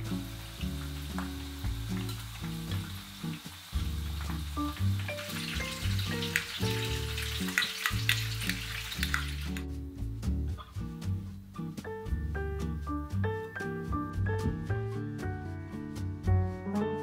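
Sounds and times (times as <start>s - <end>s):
soft music with bass line: 0.0s - 17.0s
food crackling in a bowl: 0.6s - 9.7s.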